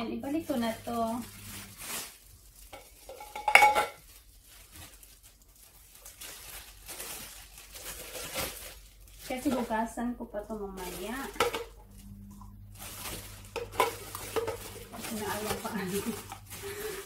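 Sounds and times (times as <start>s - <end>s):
plastic wrapping crinkling: 0.0s - 17.0s
metal pot clanking: 2.7s - 4.0s.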